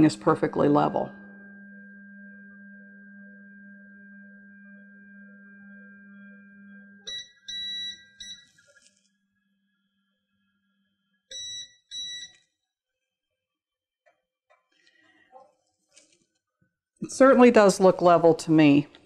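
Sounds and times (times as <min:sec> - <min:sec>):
stepper motor humming: 0:00.0 - 0:08.4
short electronic beeps: 0:07.1 - 0:08.6.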